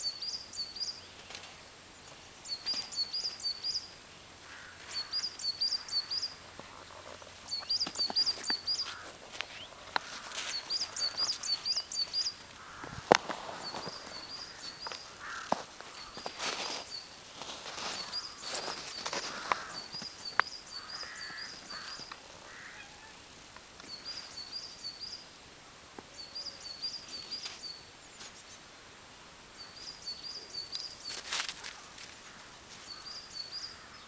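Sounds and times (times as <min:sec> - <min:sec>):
songbird chirping: 0:00.0 - 0:34.0
crunching and rustling in snow: 0:04.5 - 0:22.7, 0:30.7 - 0:33.1.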